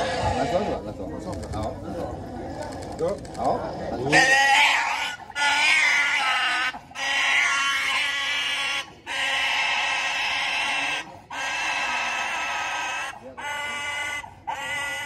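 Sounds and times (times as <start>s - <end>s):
pig squealing: 0.0s - 0.8s, 4.0s - 15.0s.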